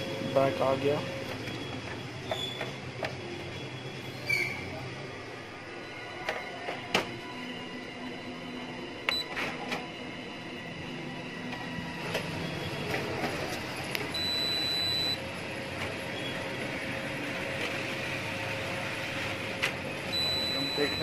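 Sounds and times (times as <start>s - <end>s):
copier whirring: 4.7s - 21.0s
high steady tone: 14.1s - 15.2s, 20.1s - 21.0s.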